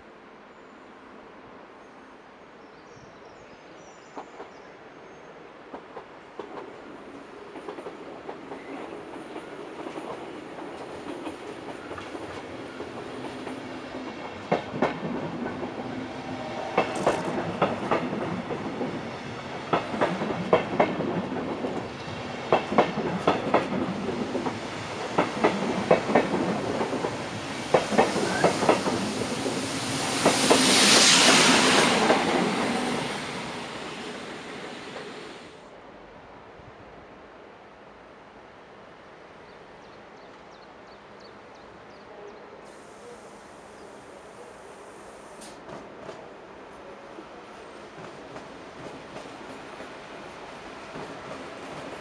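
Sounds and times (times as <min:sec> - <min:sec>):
rushing hiss of passing train: 0:00.0 - 0:52.0
train rumble: 0:05.6 - 0:35.6, 0:42.7 - 0:52.0
train wheels clicking over rail joints: 0:07.6 - 0:15.9, 0:16.7 - 0:33.2.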